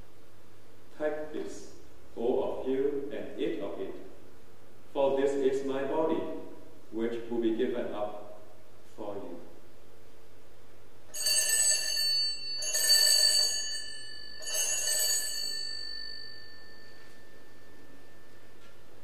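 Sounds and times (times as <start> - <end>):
altar bells ringing: 11.1 - 19.0.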